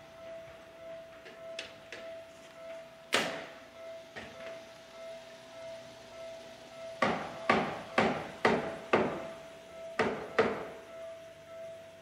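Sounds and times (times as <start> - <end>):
train wheels clacking over rail joints: 7.0 - 9.4, 10.0 - 10.8.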